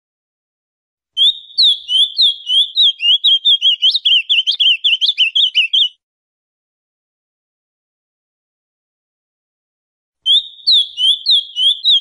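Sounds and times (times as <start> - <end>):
bird singing whistled notes: 1.2 - 6.0, 10.3 - 12.0.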